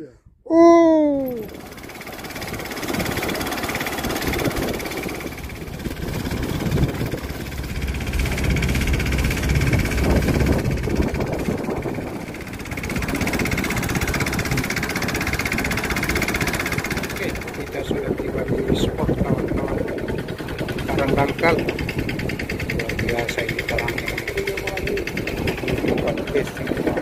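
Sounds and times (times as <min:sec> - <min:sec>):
small boat engine chugging: 0:01.0 - 0:27.0.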